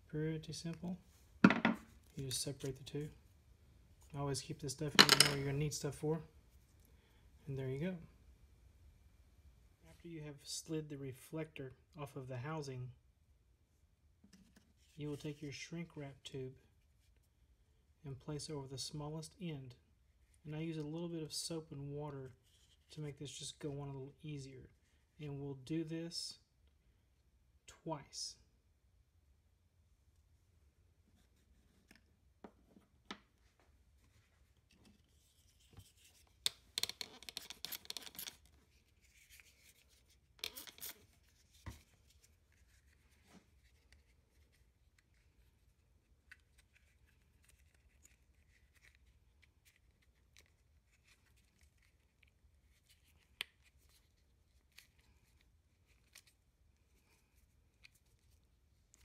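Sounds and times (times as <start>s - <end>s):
rubbing and rustling: 31.0s - 59.0s.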